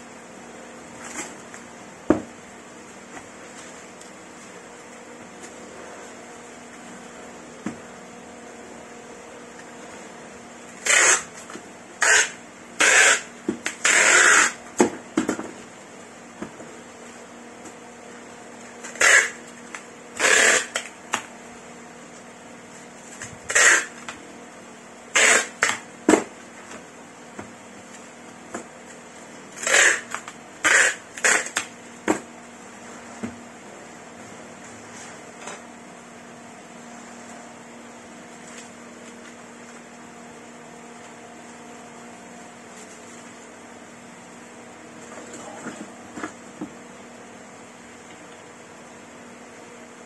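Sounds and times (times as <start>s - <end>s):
packing tape pulled off roll: 10.7s - 14.6s, 18.8s - 21.2s, 23.1s - 24.2s, 25.1s - 25.8s, 29.6s - 31.7s.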